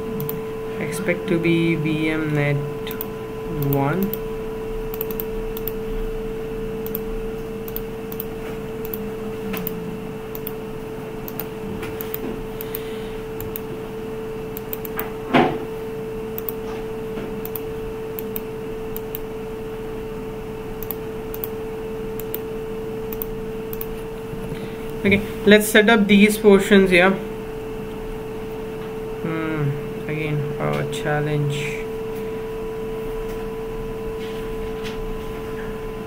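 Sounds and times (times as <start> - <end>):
steady background hum: 0.0 - 36.0
computer mouse clicks: 2.9 - 4.2, 4.9 - 5.8, 6.8 - 10.6, 11.3 - 13.7, 14.6 - 15.1, 16.4 - 16.6, 17.4 - 19.3, 20.8 - 21.6, 22.2 - 22.5, 23.1 - 24.0.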